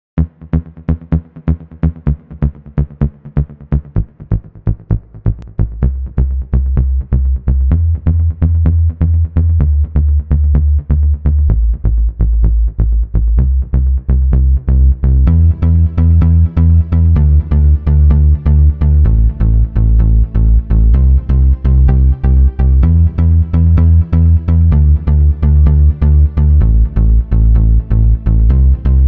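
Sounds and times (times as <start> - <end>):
heavy sustained bass: 3.8 - 29.0
synth pattern: 15.3 - 29.0.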